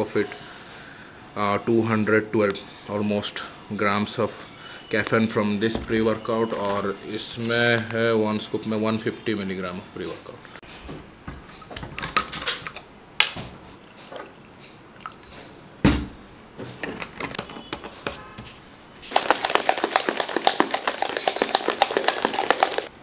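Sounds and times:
shaker bottle rattling: 19.0s - 23.0s.

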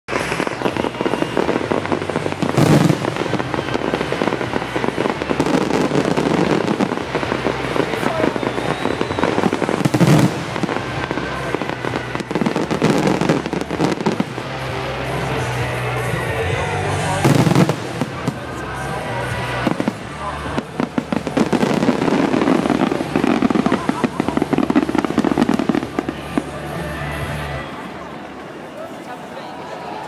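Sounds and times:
heavy firework bangs: 0.1s - 27.1s
fireworks crackling: 0.1s - 30.0s.

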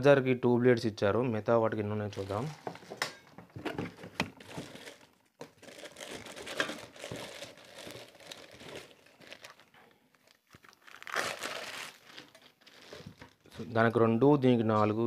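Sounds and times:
plastic wrapping crinkling: 2.1s - 3.0s, 3.9s - 13.9s.

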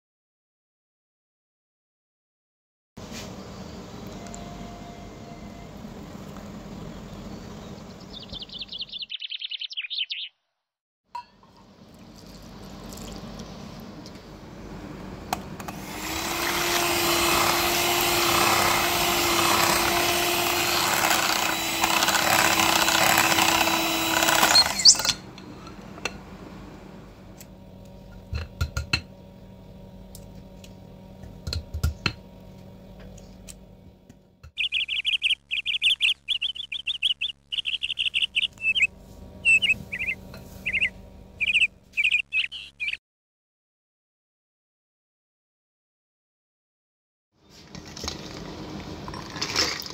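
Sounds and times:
electric hand mixer running: 15.7s - 25.0s
short high chirps: 34.6s - 43.0s.

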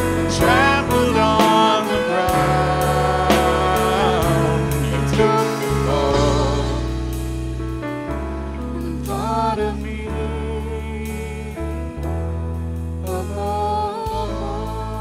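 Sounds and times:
person singing worship song: 0.0s - 7.4s, 8.5s - 12.0s, 13.0s - 15.0s
instrumental accompaniment with beat: 0.0s - 10.1s.

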